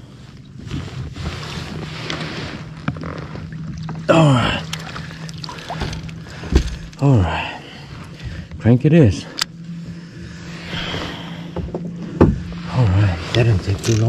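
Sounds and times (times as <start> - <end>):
fish thrashing in water: 3.4 - 7.0.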